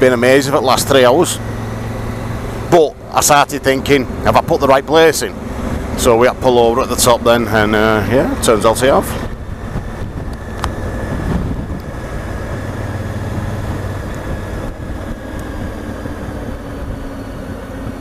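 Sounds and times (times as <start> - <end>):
motorcycle engine running: 0.0 - 18.0
wind buffeting microphone: 9.0 - 18.0.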